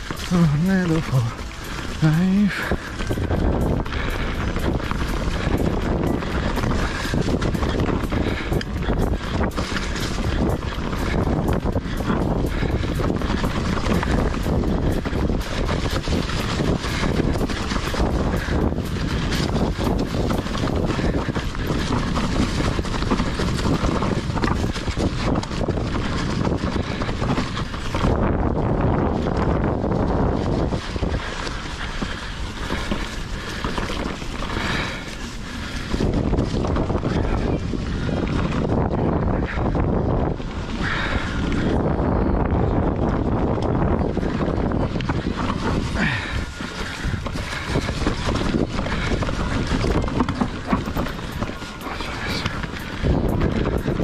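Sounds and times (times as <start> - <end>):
tyres rolling through dry leaves: 0.0 - 42.0, 44.1 - 54.0
bike frame rattling and clicking: 0.0 - 54.0
wind on microphone: 0.0 - 54.0
tyres crunching over leaves and stones: 44.8 - 53.8.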